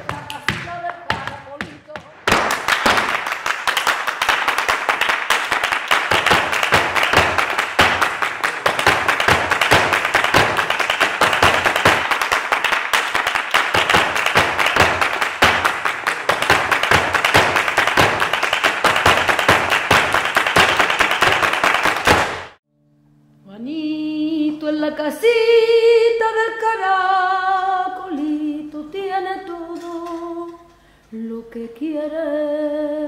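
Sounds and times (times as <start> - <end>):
footwork stamping on stage floor: 0.0 - 22.6.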